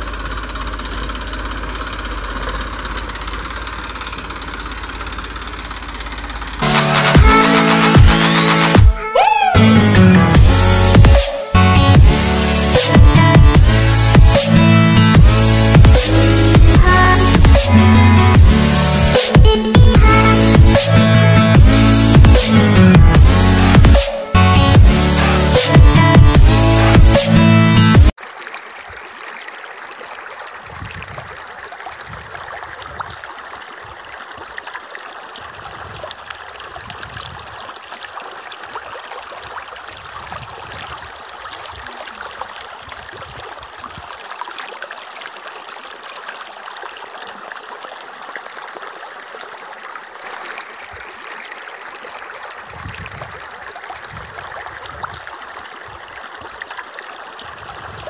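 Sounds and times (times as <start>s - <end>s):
low rumbles: 0.0s - 8.8s, 9.6s - 28.2s
water stream splashing: 0.0s - 58.0s.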